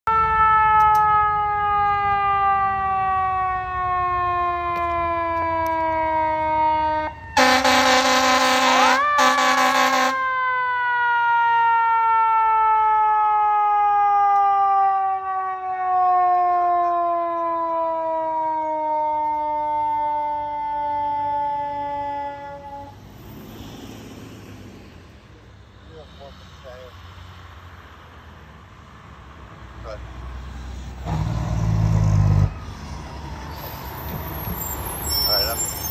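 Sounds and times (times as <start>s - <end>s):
fire engine siren: 0.0s - 35.9s
truck engine rumble: 0.1s - 35.9s
air horn blasts: 7.4s - 10.3s.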